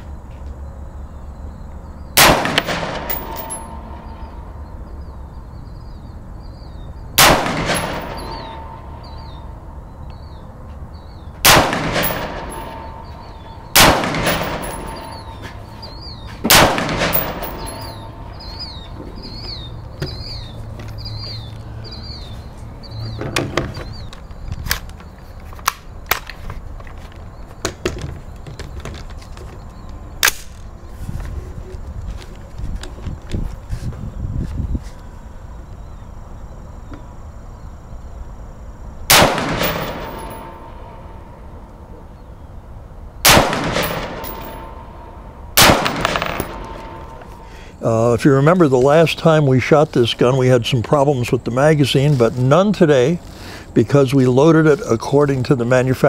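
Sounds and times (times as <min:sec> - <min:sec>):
rifle shots ringing: 0:02.2 - 0:05.1, 0:07.2 - 0:09.8, 0:11.4 - 0:20.6, 0:39.1 - 0:41.7, 0:43.2 - 0:47.5.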